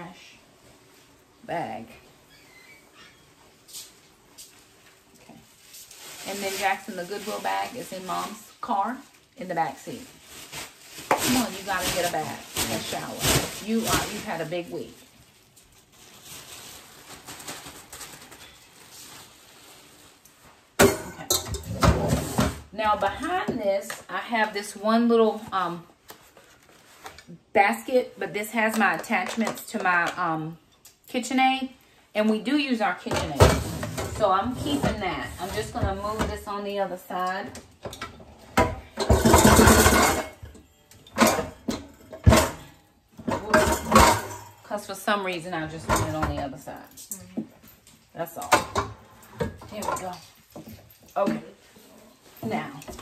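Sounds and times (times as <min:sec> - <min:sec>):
basket scraping across a shelf: 0:21.5 - 0:22.8, 0:33.3 - 0:36.4.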